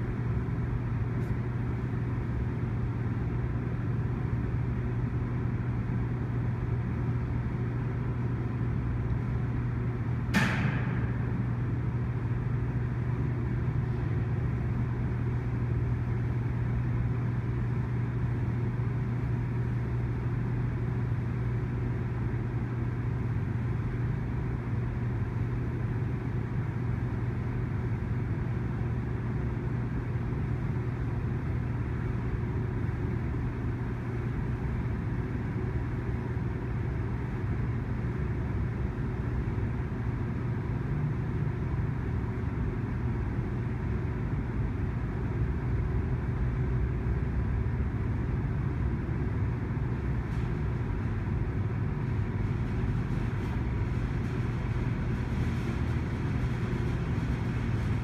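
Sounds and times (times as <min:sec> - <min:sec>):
sharp bang: 0:10.3 - 0:11.3
train wheels rumbling on rail: 0:52.0 - 0:58.0.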